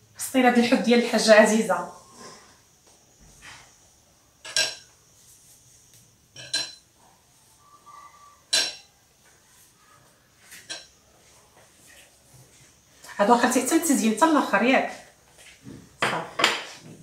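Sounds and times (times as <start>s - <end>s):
metal baking tray clinking: 6.4s - 6.8s, 8.5s - 8.9s.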